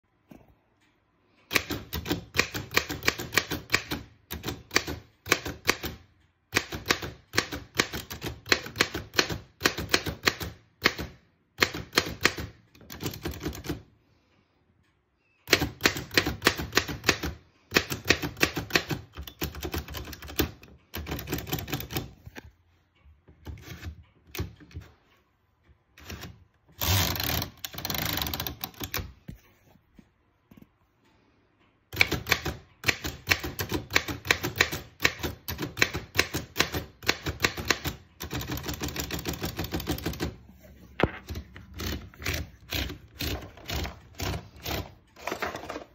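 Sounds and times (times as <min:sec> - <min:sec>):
manual typewriter typing: 0:01.4 - 0:13.9, 0:15.4 - 0:22.3, 0:26.0 - 0:29.1, 0:31.9 - 0:40.5, 0:41.2 - 0:45.9
typewriter continuous rattle: 0:01.5 - 0:13.9, 0:15.4 - 0:22.2, 0:32.0 - 0:40.5, 0:41.2 - 0:45.8.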